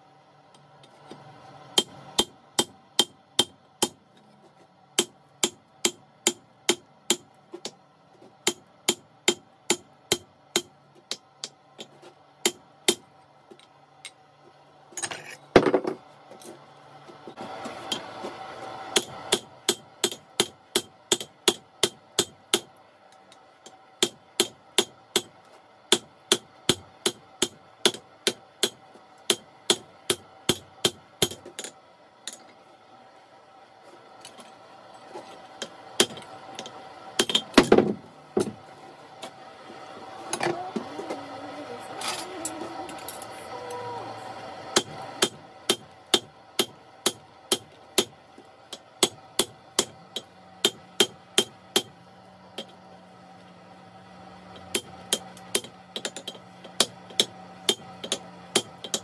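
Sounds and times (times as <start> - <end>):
hammer striking steel on anvil: 1.7 - 4.0, 18.9 - 22.7, 23.6 - 25.3, 25.9 - 31.7, 35.6 - 37.8, 44.8 - 52.0, 54.6 - 59.0.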